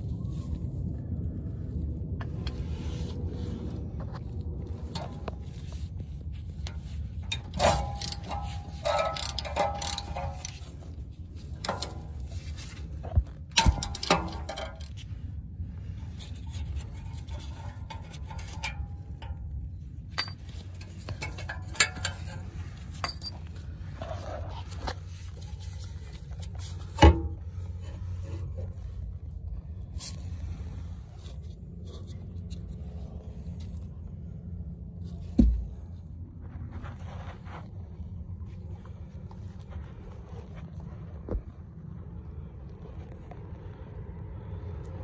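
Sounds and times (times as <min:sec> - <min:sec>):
low rumble: 0:00.0 - 0:45.0
metal clinks and knocks: 0:06.6 - 0:12.6, 0:13.5 - 0:15.0, 0:16.5 - 0:24.2.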